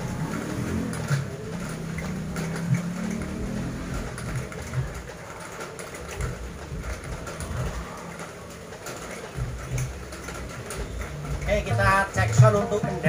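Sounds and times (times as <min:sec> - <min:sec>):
drum music through speakers: 0:11.4 - 0:13.0.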